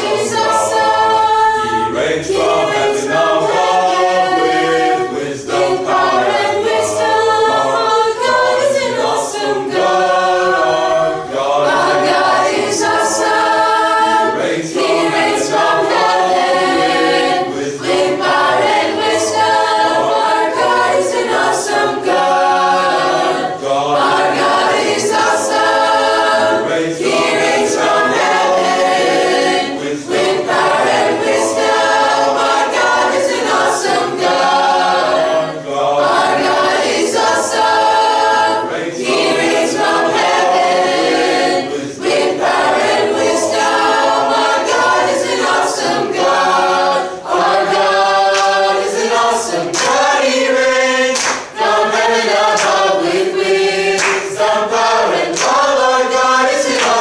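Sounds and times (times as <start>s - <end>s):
chorus singing in harmony: 0.0s - 57.0s.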